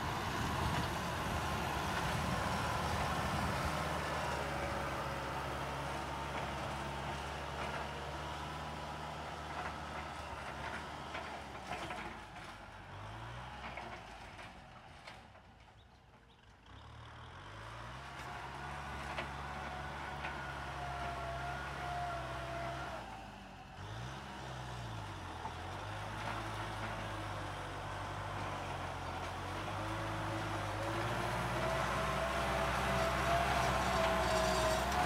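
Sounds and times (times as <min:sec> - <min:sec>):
tractor diesel engine running: 0:00.0 - 0:14.5, 0:16.6 - 0:35.0.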